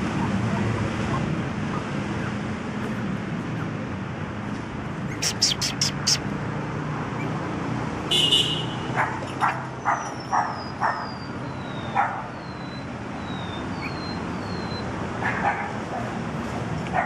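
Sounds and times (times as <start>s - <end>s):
puppies yipping: 5.0s - 6.3s, 9.0s - 15.8s
bird chirping: 5.1s - 6.3s, 9.8s - 14.9s.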